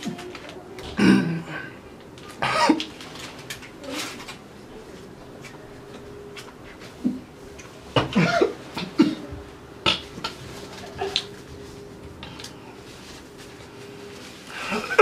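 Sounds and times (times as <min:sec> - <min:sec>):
man coughing and gagging: 0:02.4 - 0:02.8, 0:08.0 - 0:09.3.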